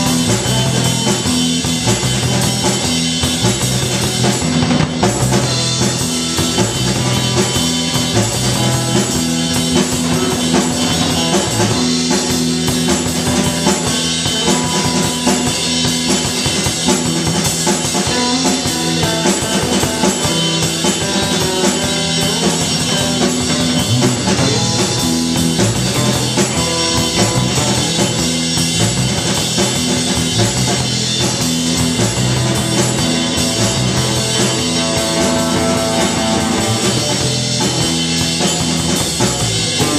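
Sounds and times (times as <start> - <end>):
drum kit: 0.0 - 39.9
electric guitar: 0.0 - 39.9
rock band playing: 0.0 - 39.9.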